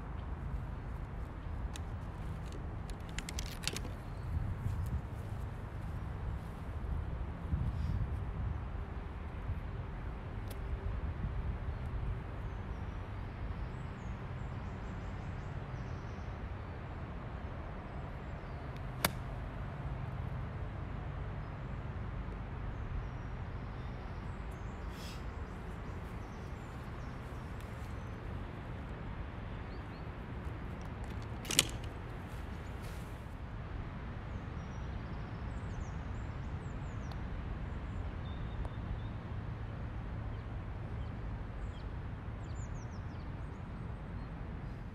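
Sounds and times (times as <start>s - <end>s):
golf club striking ball: 19.0s - 19.3s, 31.4s - 31.9s.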